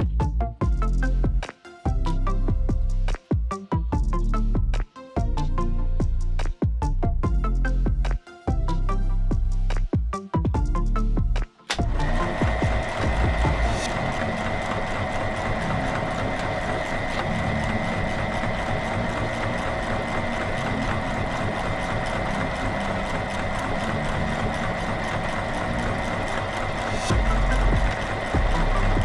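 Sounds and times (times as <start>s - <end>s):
meat grinder motor humming: 11.8s - 29.0s.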